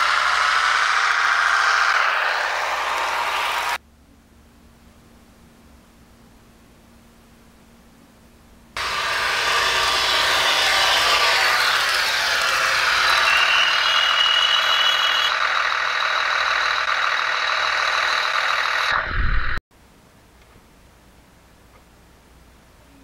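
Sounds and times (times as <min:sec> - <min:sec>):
diesel engine drone: 0:00.0 - 0:03.8, 0:08.8 - 0:19.6
thin high tone: 0:10.7 - 0:15.4.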